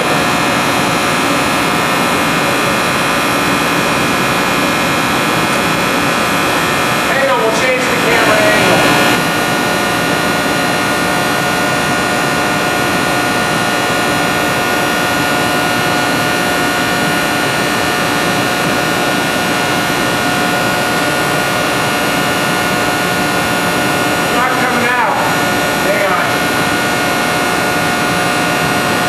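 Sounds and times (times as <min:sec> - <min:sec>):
machinery hum: 0:00.0 - 0:29.0
machinery rushing noise: 0:07.0 - 0:11.3.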